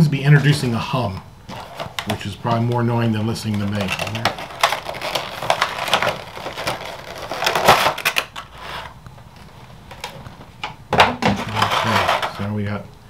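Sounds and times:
plastic blister pack crinkling: 0:01.5 - 0:08.9.

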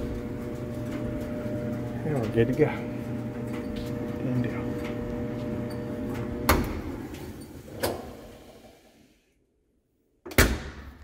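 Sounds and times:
dryer humming: 0:00.0 - 0:09.1.

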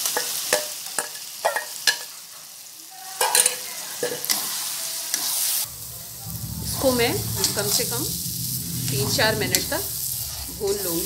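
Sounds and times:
food sizzling in oil: 0:00.0 - 0:11.0
metal spatula scraping a pan: 0:05.2 - 0:11.0.

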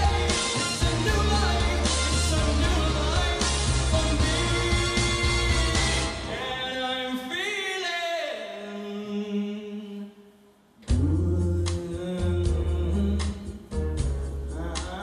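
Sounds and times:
backing music with bass and drums: 0:00.0 - 0:06.4, 0:10.9 - 0:15.0
man singing: 0:00.0 - 0:15.0.

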